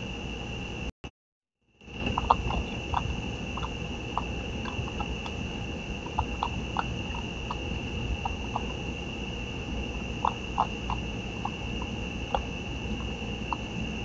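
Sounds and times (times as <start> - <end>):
steady high-pitched whine: 0.0 - 0.9, 1.7 - 14.0
animal crunching dry food: 2.0 - 8.8.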